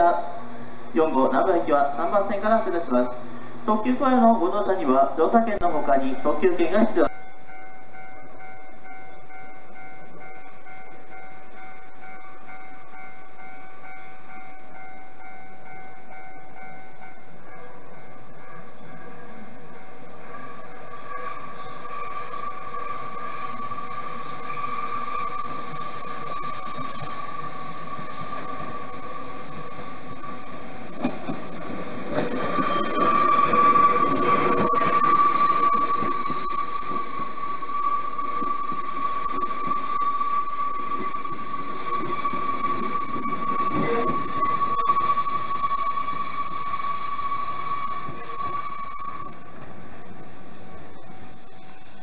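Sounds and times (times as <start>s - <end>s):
train running noise: 0.0s - 51.8s
train wheels squealing: 8.1s - 49.7s.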